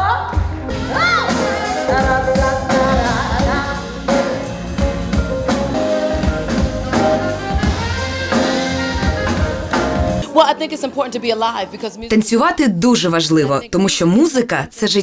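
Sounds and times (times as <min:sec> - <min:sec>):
woman singing: 0:00.0 - 0:04.5
live jazz band: 0:00.6 - 0:10.2.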